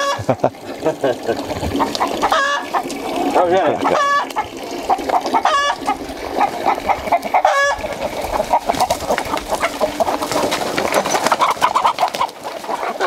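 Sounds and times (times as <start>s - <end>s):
chickens clucking: 0.0s - 13.0s
sharp chicken calls: 1.8s - 2.9s, 3.8s - 13.0s.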